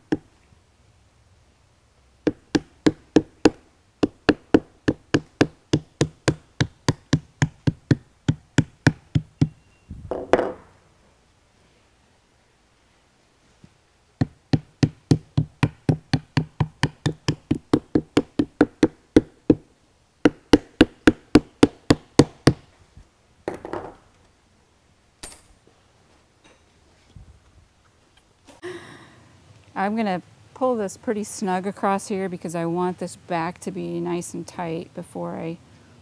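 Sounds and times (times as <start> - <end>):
hammer tapping nails: 0.0 - 0.3, 2.3 - 10.6, 14.2 - 19.6, 20.2 - 22.7.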